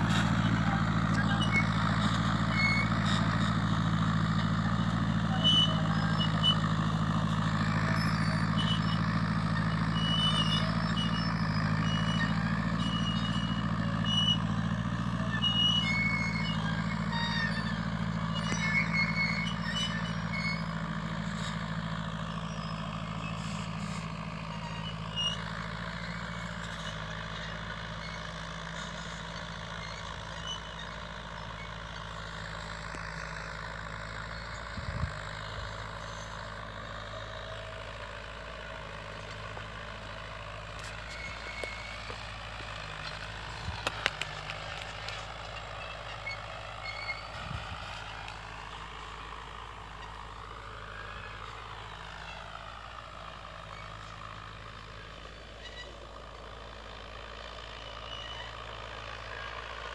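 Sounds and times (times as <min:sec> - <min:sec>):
tractor engine running: 0:00.0 - 0:59.9.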